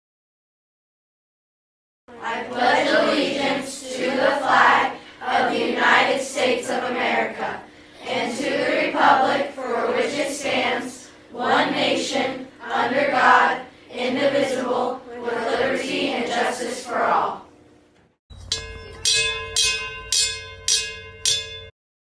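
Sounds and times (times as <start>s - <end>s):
group of people reciting: 2.1s - 17.5s.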